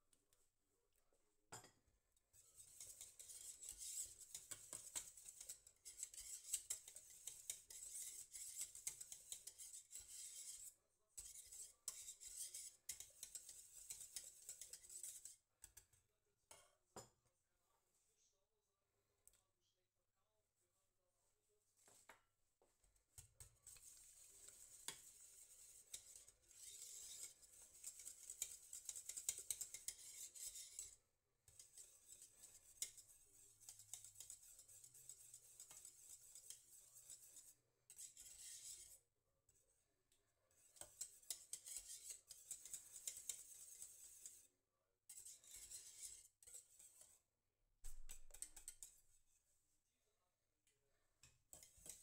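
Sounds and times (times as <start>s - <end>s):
whisk scraping metal pot: 2.4s - 15.8s, 23.4s - 39.0s, 40.5s - 44.5s, 45.1s - 47.2s, 47.8s - 49.2s, 51.2s - 52.0s.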